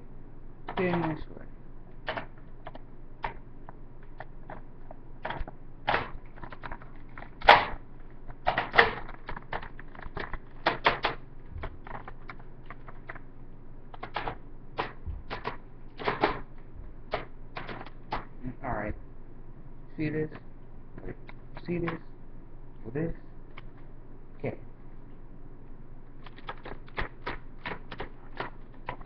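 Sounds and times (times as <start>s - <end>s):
hard plastic clicking: 5.2s - 13.2s.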